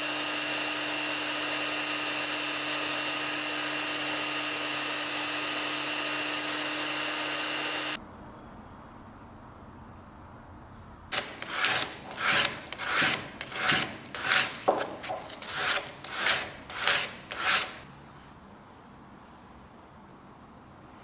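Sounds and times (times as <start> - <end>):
sanding wooden handle: 11.1 - 17.8.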